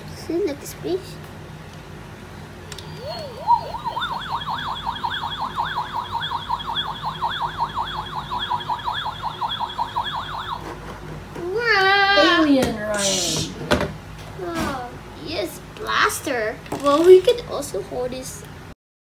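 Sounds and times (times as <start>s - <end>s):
warbling siren-like toy tone: 2.9s - 10.8s.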